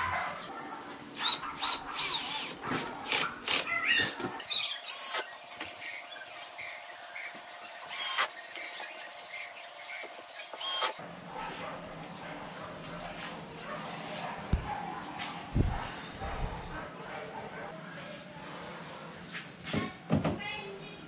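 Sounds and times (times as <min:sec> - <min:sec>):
drill driving screws into wood: 0:01.2 - 0:05.4, 0:07.7 - 0:11.0.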